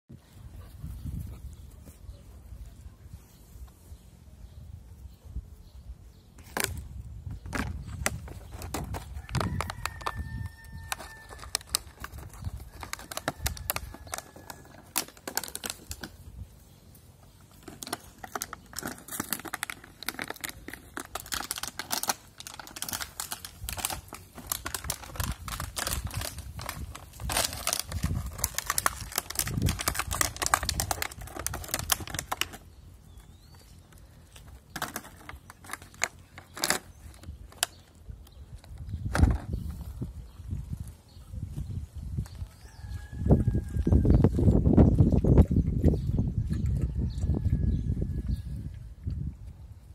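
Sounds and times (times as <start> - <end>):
plastic bottle crinkling: 6.4 - 16.4, 17.3 - 38.0.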